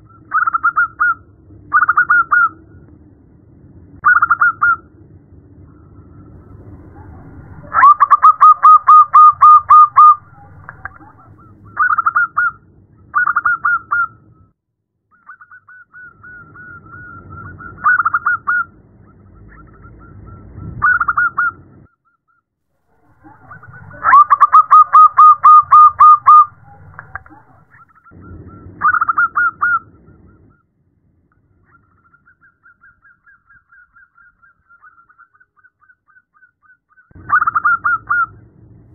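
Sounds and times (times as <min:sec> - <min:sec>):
low background rumble: 0:00.0 - 0:14.6, 0:16.1 - 0:21.9, 0:22.9 - 0:32.3, 0:37.2 - 0:38.9
dove cooing: 0:06.4 - 0:11.9, 0:23.0 - 0:27.7.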